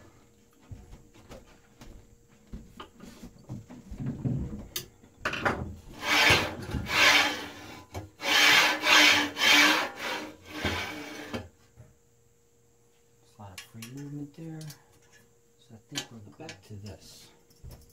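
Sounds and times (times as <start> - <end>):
bearings rasping on metal rods: 6.0 - 11.4.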